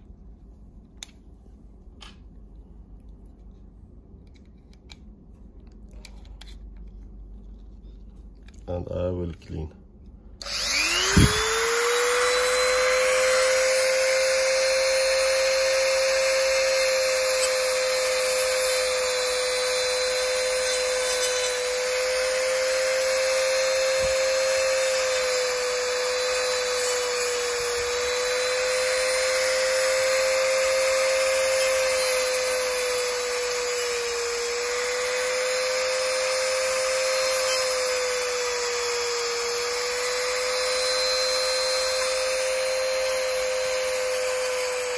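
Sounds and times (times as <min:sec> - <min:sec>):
rotary tool whining: 0:10.4 - 0:44.9.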